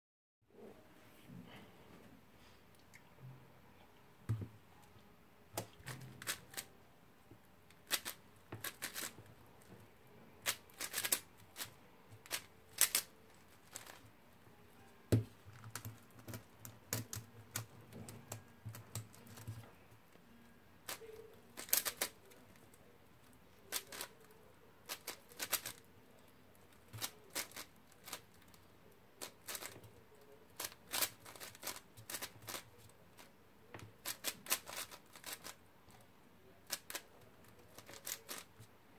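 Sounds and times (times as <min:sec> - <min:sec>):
plastic puzzle cube clicking: 0:05.6 - 0:06.7, 0:07.8 - 0:09.1, 0:10.4 - 0:13.1, 0:21.6 - 0:22.2, 0:23.7 - 0:24.1, 0:24.9 - 0:25.8, 0:29.2 - 0:29.8, 0:30.6 - 0:32.6, 0:34.0 - 0:35.6, 0:37.7 - 0:38.5.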